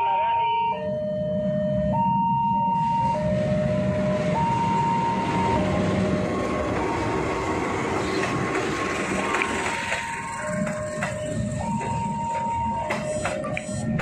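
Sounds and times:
level crossing alarm two tones: 0.0s - 7.4s, 9.6s - 14.0s
locomotive engine rumble: 1.5s - 14.0s
wheel and rail noise: 3.3s - 14.0s.

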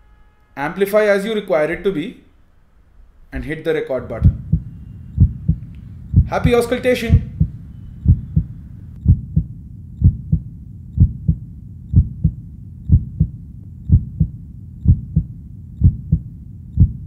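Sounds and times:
heartbeat through stethoscope: 4.2s - 17.0s.

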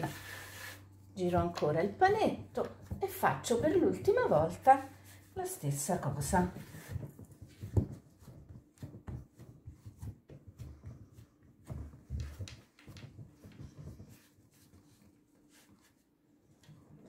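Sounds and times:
hands patting pastry dough: 0.0s - 16.3s.

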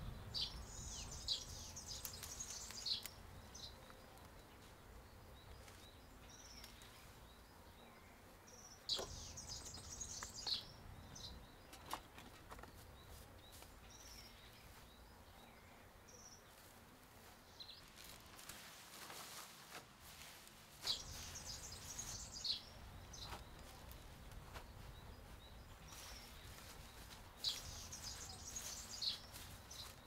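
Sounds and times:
small birds chirping: 0.0s - 30.0s
soft rustles: 16.5s - 22.6s, 23.2s - 30.0s.

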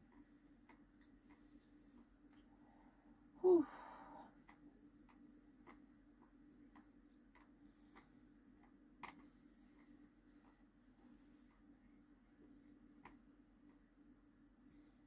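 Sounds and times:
soft steady ticking: 0.0s - 15.0s
woman's short vocal sound: 3.4s - 4.1s.

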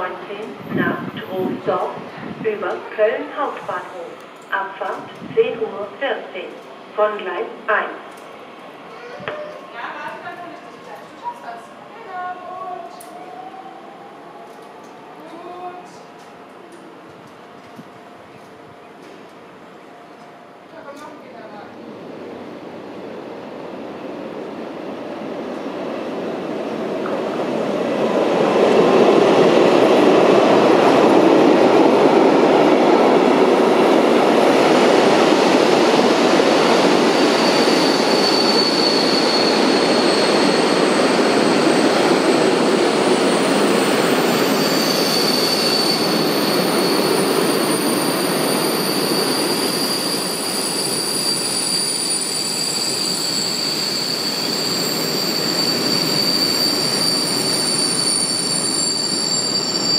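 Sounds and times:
high wheel squeal: 37.1s - 59.9s.

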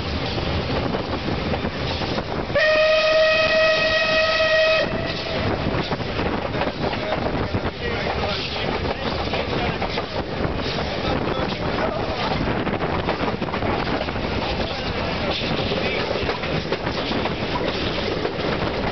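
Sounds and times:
moving train running noise: 0.0s - 18.9s
steam locomotive whistle: 2.5s - 5.4s.

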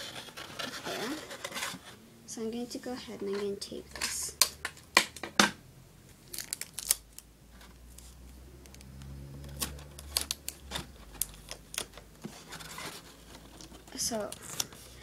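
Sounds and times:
tape being torn: 6.2s - 7.3s, 7.9s - 12.0s.

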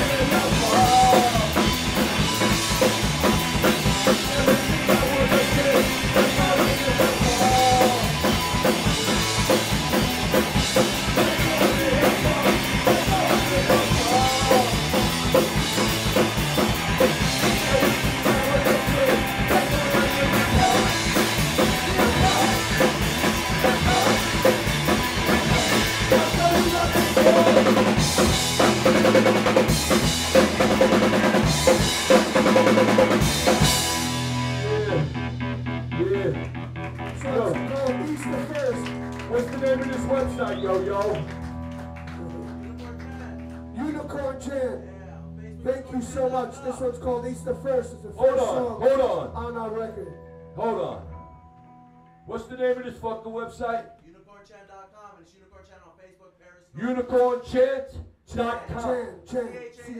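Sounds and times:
drum kit hammering: 0.0s - 36.5s
live rock band playing: 0.0s - 44.2s.

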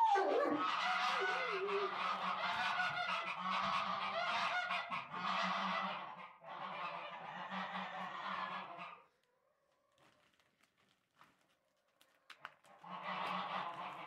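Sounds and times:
geese honking loudly: 0.0s - 9.1s, 12.8s - 14.0s.

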